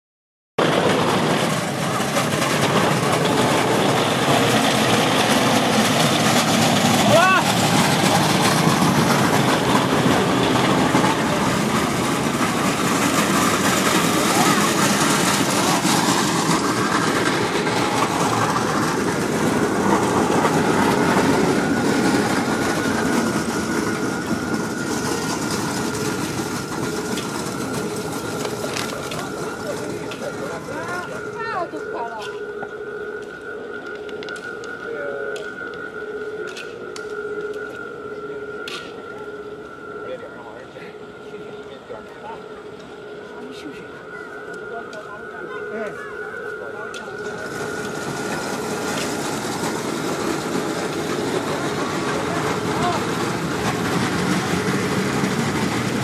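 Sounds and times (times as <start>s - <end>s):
traffic noise: 0.6s - 56.0s
faint voices of passers-by: 0.8s - 56.0s
crowd noise: 24.7s - 56.0s.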